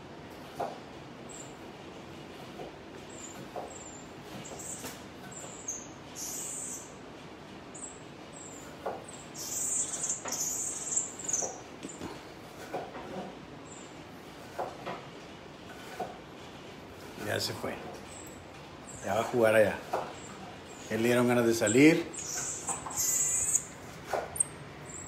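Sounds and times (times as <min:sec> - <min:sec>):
marmoset high-pitched chirps: 0:03.1 - 0:06.9, 0:09.4 - 0:11.6, 0:21.7 - 0:23.7, 0:24.4 - 0:25.0.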